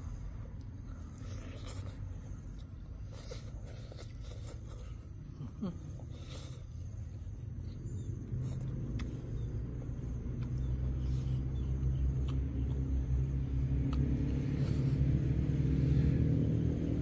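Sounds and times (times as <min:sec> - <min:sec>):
low engine rumble: 0:00.0 - 0:17.0.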